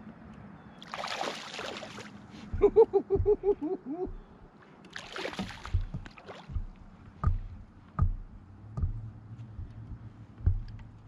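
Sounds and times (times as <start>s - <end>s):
water sloshing: 0.8s - 11.0s
knocks on kayak hull: 5.4s - 10.9s.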